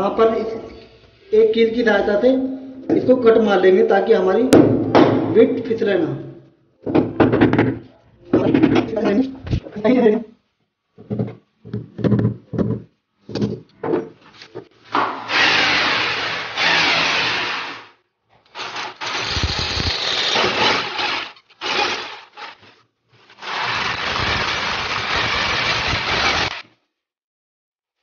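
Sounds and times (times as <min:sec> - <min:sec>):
electric drill boring into wall: 0:15.3 - 0:22.7, 0:23.4 - 0:26.7.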